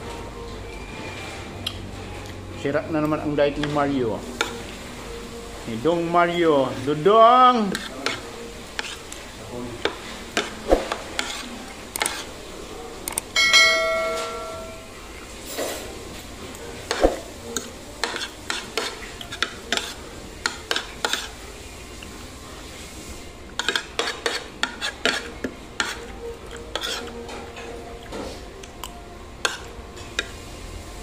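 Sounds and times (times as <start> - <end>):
cutlery clinking on plate: 13.1 - 14.9
ringing tone of cutlery strike: 13.4 - 14.9.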